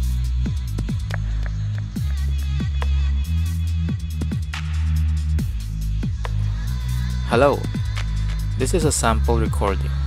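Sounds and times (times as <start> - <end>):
electronic music with heavy bass: 0.0 - 10.0.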